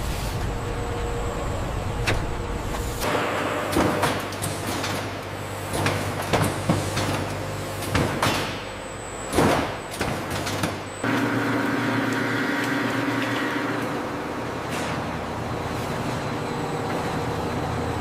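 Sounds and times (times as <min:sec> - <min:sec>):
meat grinder motor hum: 0:11.0 - 0:14.1.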